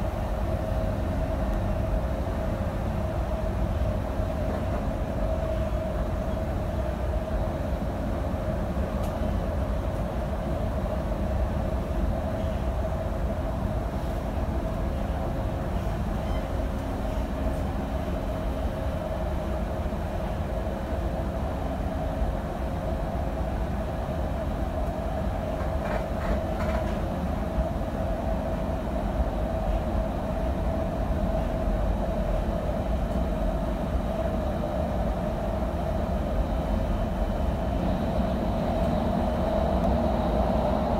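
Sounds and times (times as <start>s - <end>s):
steady hum: 0.0s - 40.9s
train wheels rumbling on rail: 0.0s - 40.9s.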